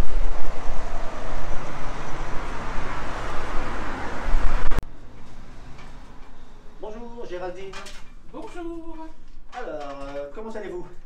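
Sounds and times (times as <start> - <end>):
street traffic rumble: 0.0 - 9.8.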